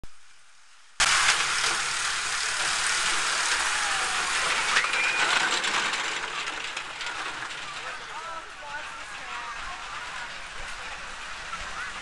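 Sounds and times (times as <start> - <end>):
roller coaster train clattering on track: 1.0 - 12.0
high squeal: 3.6 - 5.6.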